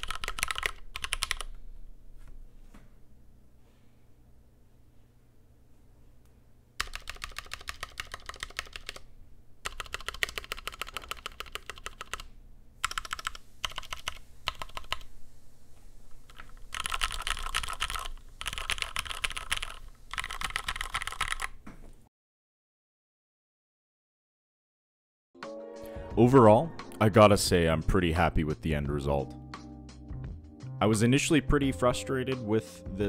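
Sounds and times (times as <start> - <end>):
typing on mechanical keyboard: 0.0 - 1.6, 6.8 - 15.1, 16.3 - 21.6.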